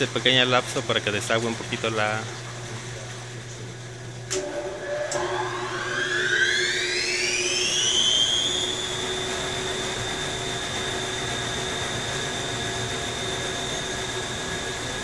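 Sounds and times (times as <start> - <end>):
washing machine drum motor whine: 0.0 - 15.0.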